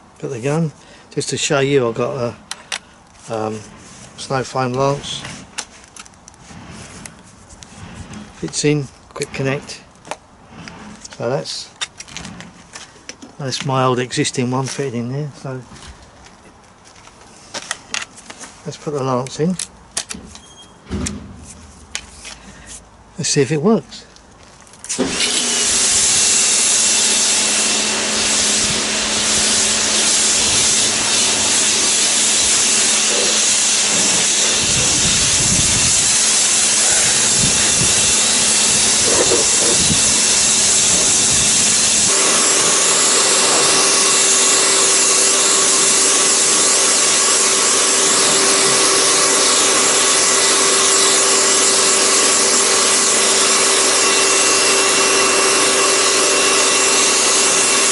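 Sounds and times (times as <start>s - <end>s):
motor and pump hum: 24.9s - 57.9s
water jet spraying: 25.0s - 57.9s.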